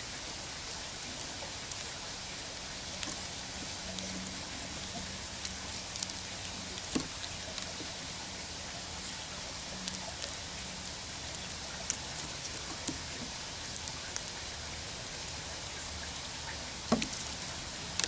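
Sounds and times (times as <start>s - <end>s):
steady outdoor hiss: 0.0s - 18.0s
dry clicks of seeds and shells: 0.1s - 8.0s, 9.9s - 14.5s, 15.1s - 15.5s, 16.9s - 18.0s.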